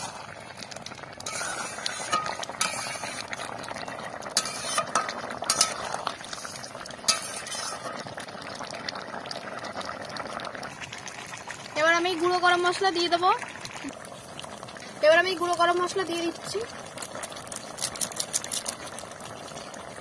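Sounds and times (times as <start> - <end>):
metal spatula scraping a pan: 0.0 - 0.2, 1.2 - 8.1
curry boiling bubbles: 0.0 - 20.0.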